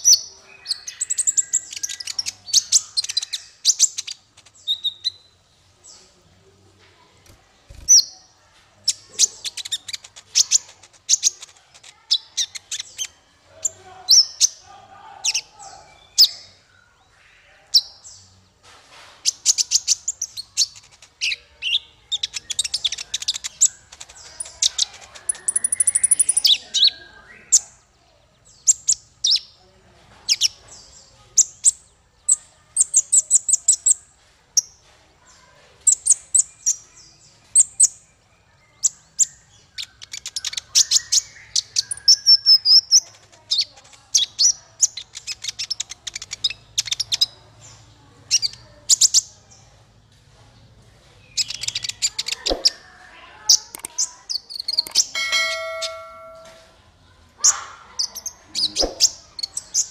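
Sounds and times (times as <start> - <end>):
bird chirping and twittering: 0.0 - 6.3, 7.0 - 18.6, 19.2 - 29.6, 30.2 - 49.7, 51.1 - 59.9.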